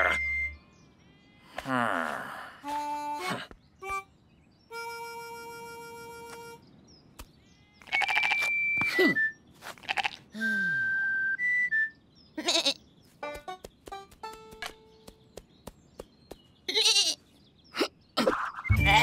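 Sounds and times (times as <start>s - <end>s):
cartoon sheep bleating: 12.4s - 12.8s, 16.7s - 17.2s, 18.7s - 19.0s.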